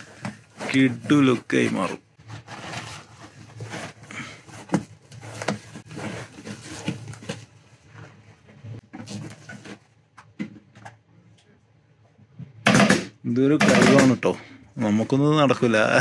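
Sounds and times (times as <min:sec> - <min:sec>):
leather rustling and rubbing: 0:00.0 - 0:09.9.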